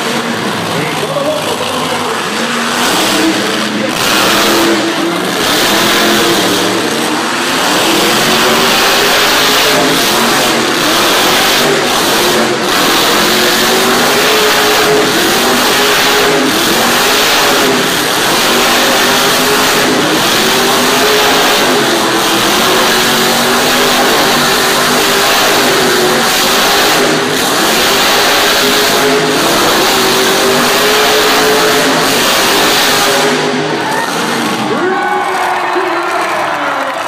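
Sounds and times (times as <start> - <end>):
truck engine revving hard: 0.0 - 37.0.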